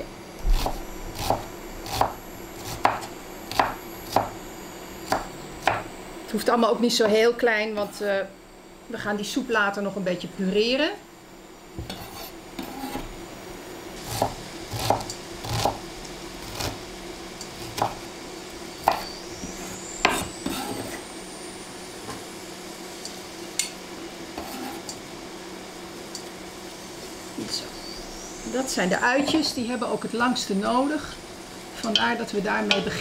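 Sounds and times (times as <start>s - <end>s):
low steady hum: 0.0s - 33.0s
knife chopping on wooden board: 0.6s - 4.3s, 5.1s - 5.8s, 14.1s - 15.8s, 17.7s - 18.0s, 18.8s - 19.1s.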